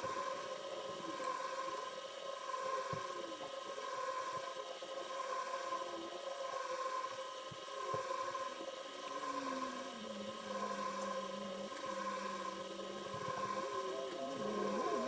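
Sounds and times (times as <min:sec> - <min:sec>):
steady hum and hiss: 0:00.0 - 0:15.0
faint clicks and scrapes: 0:07.4 - 0:15.0.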